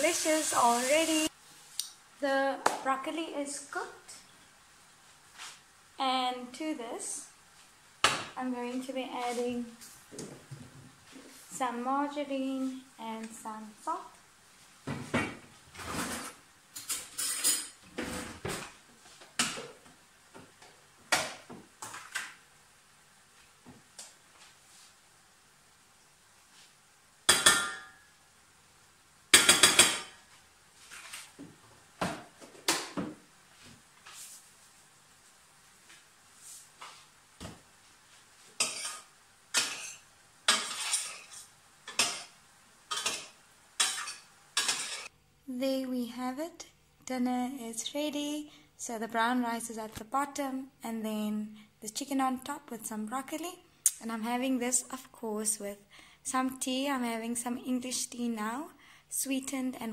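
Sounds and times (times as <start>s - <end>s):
utensils clattering on steel pot: 38.6s - 42.3s, 42.9s - 45.1s
metal spoon scraping a saucepan: 39.8s - 42.3s.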